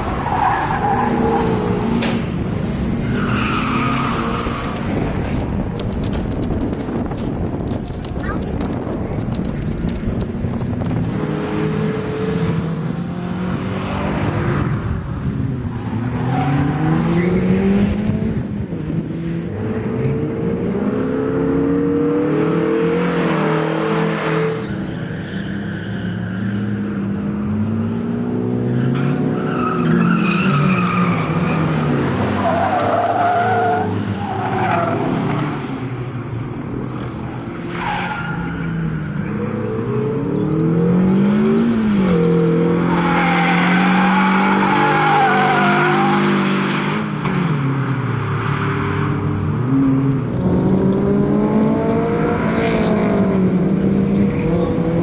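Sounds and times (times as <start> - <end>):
car engine revving: 48.8 - 55.0.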